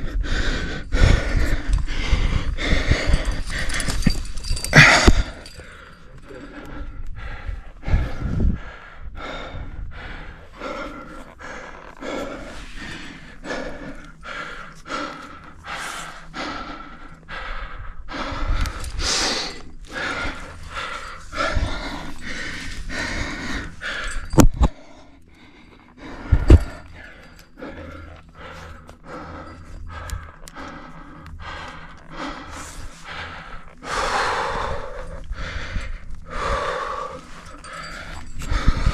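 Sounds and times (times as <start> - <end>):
person breathing hard: 0.0 - 38.9.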